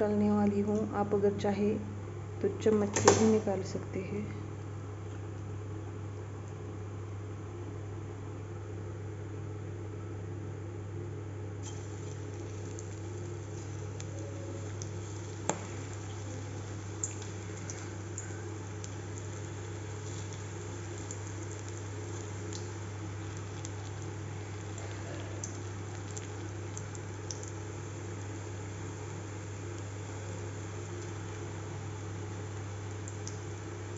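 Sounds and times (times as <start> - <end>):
steady low hum: 0.0 - 33.9
crackles and pops in oil: 11.6 - 27.6, 32.4 - 33.6
deep-frying sizzle in oil: 11.6 - 33.9.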